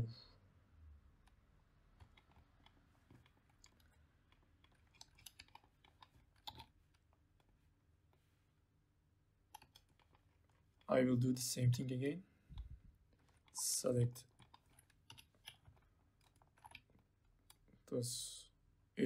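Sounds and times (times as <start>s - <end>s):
keyboard and mouse clicks: 1.2s - 7.5s, 9.5s - 10.6s, 14.3s - 17.8s.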